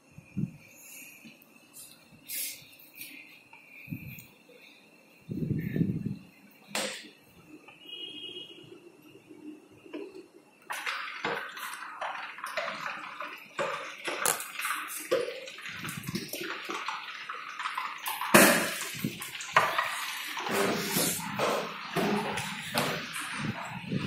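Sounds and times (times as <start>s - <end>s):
water running and splashing: 10.7s - 24.0s.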